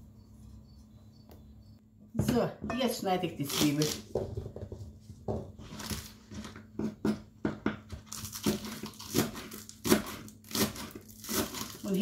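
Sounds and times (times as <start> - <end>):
knife chopping on wooden board: 3.8 - 11.8.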